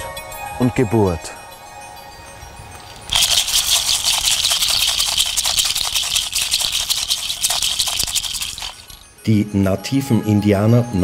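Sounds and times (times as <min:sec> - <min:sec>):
hand rattle shaken: 0:02.7 - 0:09.3.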